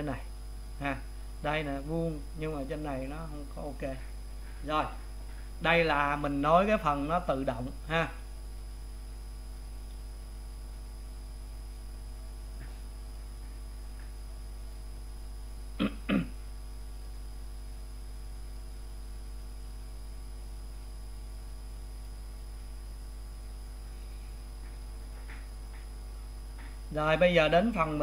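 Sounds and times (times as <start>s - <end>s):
low electrical hum: 0.0s - 28.0s
man clearing throat: 15.8s - 16.4s.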